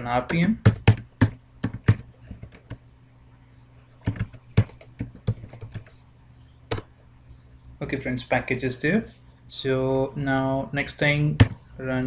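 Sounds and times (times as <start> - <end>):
keyboard typing clicks: 4.0 - 6.0.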